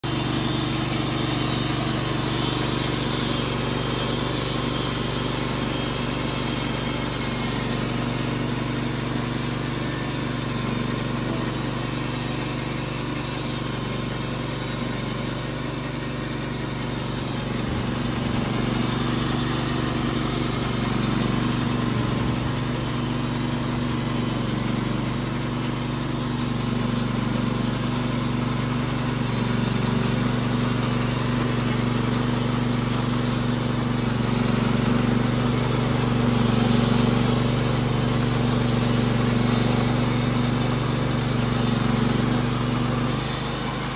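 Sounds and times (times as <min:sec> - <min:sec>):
bandsaw mill cutting log: 0:00.0 - 0:43.9.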